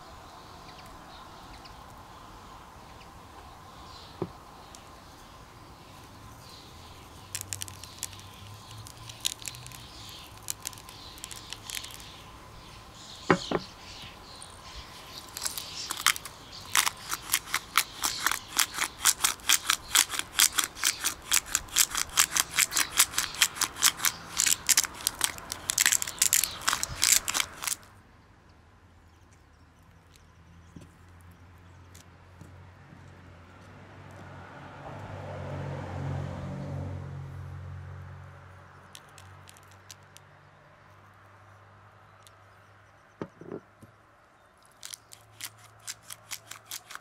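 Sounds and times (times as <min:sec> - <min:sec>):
blade cutting strokes: 0:15.0 - 0:27.8.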